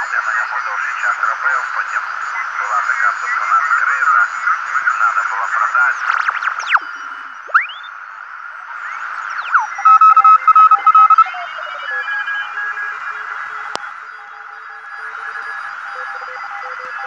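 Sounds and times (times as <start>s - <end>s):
radio band hiss: 0.0s - 17.0s
sweeping beat whistles: 6.7s - 7.9s
morse code tones: 9.4s - 13.7s.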